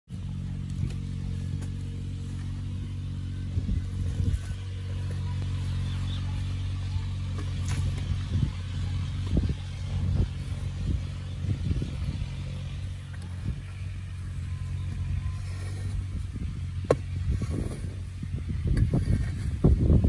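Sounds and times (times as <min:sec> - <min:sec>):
low engine-like hum: 0:00.1 - 0:20.0
soil scraping: 0:00.1 - 0:20.0
hoe chopping dry earth: 0:03.6 - 0:12.4, 0:16.8 - 0:18.0.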